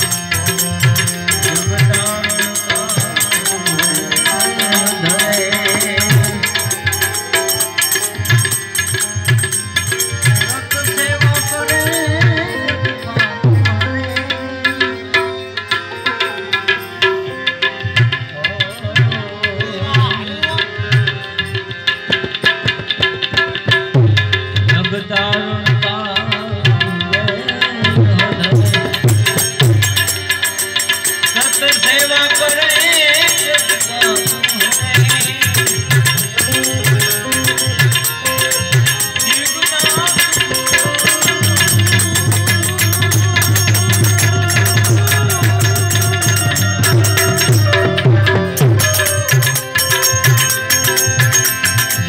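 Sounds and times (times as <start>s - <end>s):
harmonium melody: 0.0s - 52.0s
hand drum beating: 22.1s - 24.9s, 27.8s - 30.7s, 32.8s - 52.0s.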